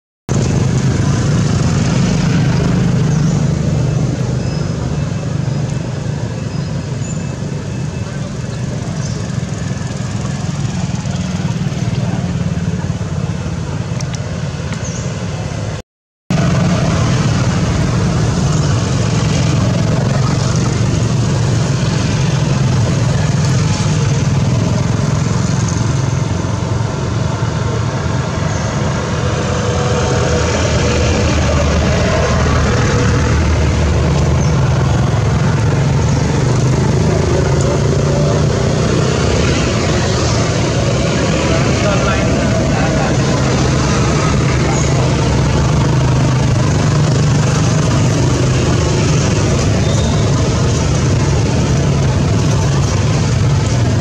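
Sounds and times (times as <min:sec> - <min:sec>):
low rumble of traffic: 0:00.3 - 0:54.0.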